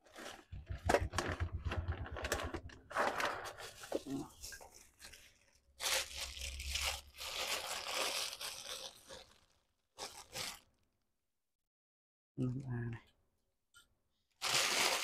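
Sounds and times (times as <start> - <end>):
plastic bag crinkling: 0.0 - 10.9, 14.4 - 15.0.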